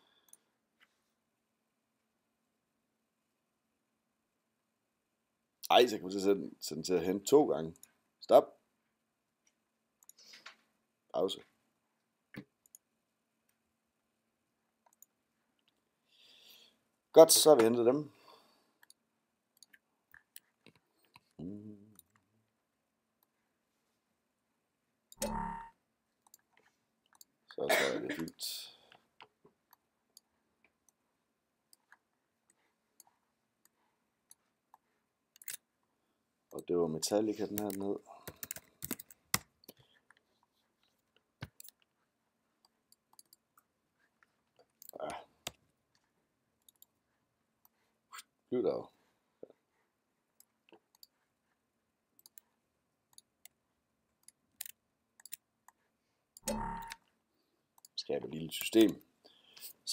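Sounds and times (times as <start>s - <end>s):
computer mouse clicks: 37.5s - 40.2s, 42.6s - 43.7s, 46.6s - 47.0s, 50.4s - 51.1s, 52.2s - 52.4s, 54.2s - 55.8s, 56.4s - 57.1s.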